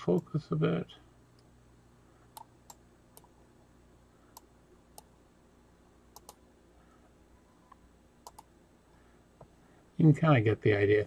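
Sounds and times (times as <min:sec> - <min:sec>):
faint webcam focus clicks: 0:06.1 - 0:06.4, 0:07.7 - 0:08.5.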